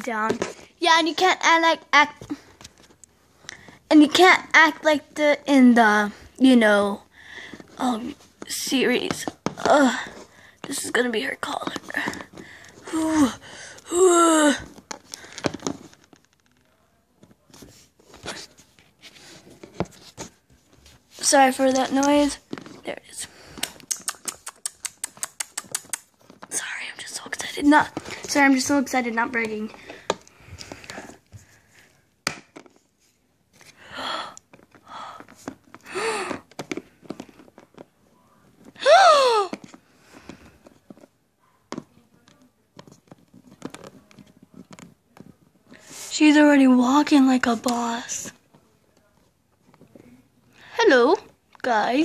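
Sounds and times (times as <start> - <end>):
plastic figures tapping: 8.4 - 12.8.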